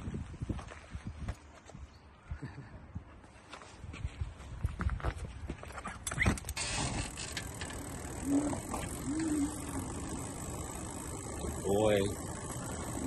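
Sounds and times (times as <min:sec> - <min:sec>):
bicycle rolling: 0:05.5 - 0:13.0
bicycle and trailer clicks and knocks: 0:05.6 - 0:13.0
short low hums: 0:06.6 - 0:13.0.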